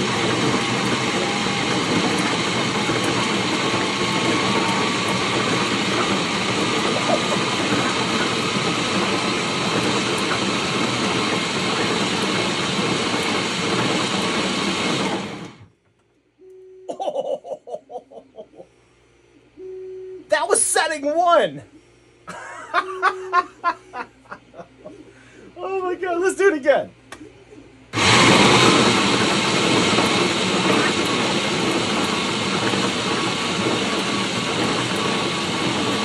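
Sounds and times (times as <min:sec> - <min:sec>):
blender motor whirring: 0:00.0 - 0:15.6, 0:28.0 - 0:36.0.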